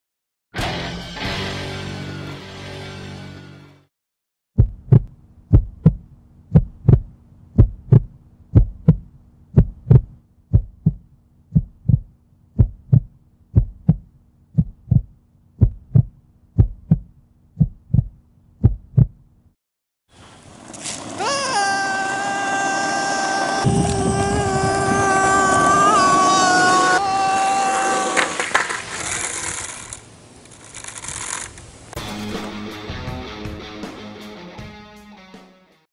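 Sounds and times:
heartbeat thumps: 0:04.6 - 0:19.2.

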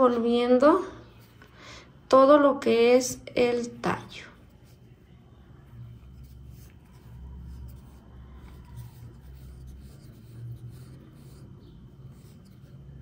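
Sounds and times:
low steady hum: 0:00.0 - 0:13.0
thread rubbing and rustling: 0:04.4 - 0:13.0.

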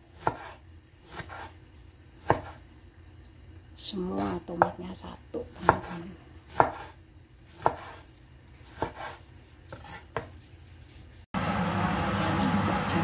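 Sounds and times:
cleaver chopping on cutting board: 0:00.2 - 0:01.5, 0:02.2 - 0:02.6, 0:05.6 - 0:07.0, 0:07.6 - 0:08.0, 0:08.7 - 0:10.3.

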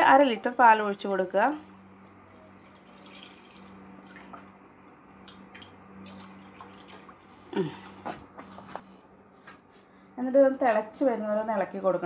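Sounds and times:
milk pouring into a pan: 0:01.7 - 0:04.6, 0:05.2 - 0:07.4.

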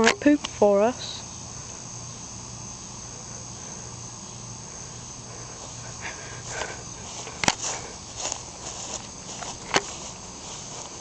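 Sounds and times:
crickets chirring: 0:00.0 - 0:11.0
footsteps swishing through grass: 0:05.5 - 0:11.0.

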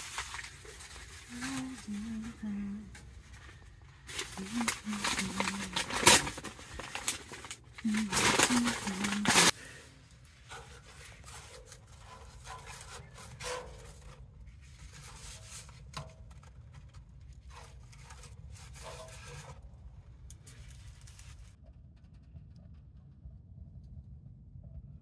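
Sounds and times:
steady low hum: 0:00.0 - 0:25.0
wood rubbed and scraped: 0:10.2 - 0:16.1.

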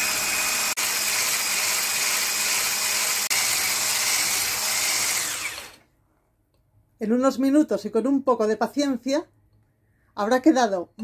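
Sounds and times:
electric hand mixer running: 0:00.0 - 0:05.8.

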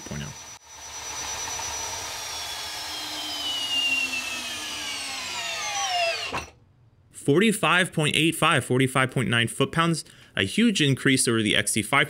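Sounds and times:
drill motor whine: 0:00.0 - 0:06.6.

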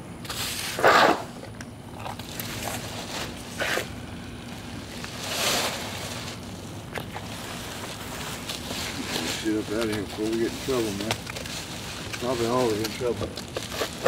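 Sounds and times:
broom sweeping on concrete: 0:00.2 - 0:01.3, 0:04.9 - 0:06.5, 0:07.3 - 0:14.0.

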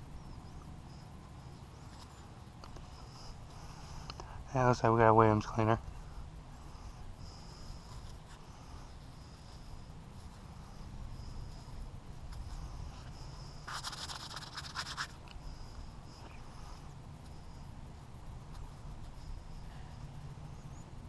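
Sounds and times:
fingers scratching mud off bullet: 0:12.3 - 0:15.2.

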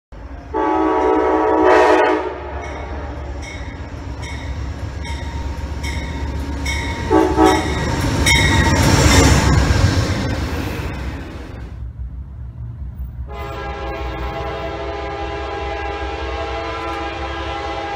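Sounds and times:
locomotive engine rumbling: 0:00.1 - 0:17.9
locomotive air horn blasts: 0:00.4 - 0:03.4, 0:07.0 - 0:07.9, 0:13.3 - 0:17.9.

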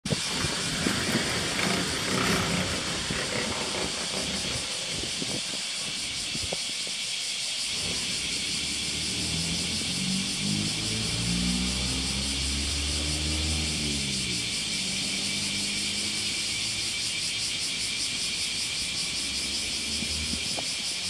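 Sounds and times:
low rumbling: 0:00.1 - 0:06.7
steady high hiss: 0:00.1 - 0:21.0.

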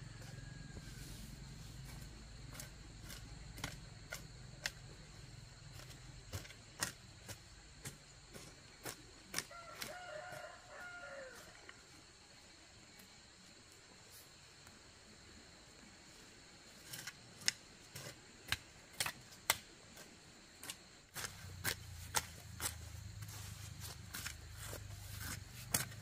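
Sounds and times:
rooster crowing: 0:00.0 - 0:01.2, 0:09.5 - 0:11.7.

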